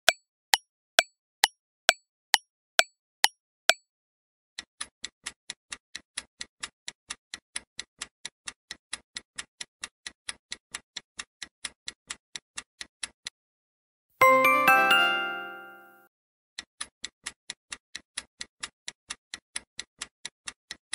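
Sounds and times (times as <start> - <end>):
bright chime: 14.2 - 16.0.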